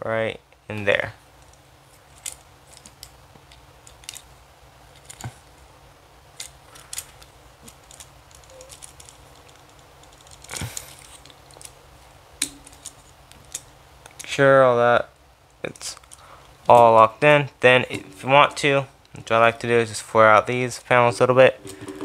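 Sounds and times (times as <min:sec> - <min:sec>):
plastic parts clicking and rubbing: 0:01.4 - 0:04.3, 0:04.9 - 0:05.6, 0:06.3 - 0:11.8, 0:12.4 - 0:14.3, 0:15.7 - 0:16.9.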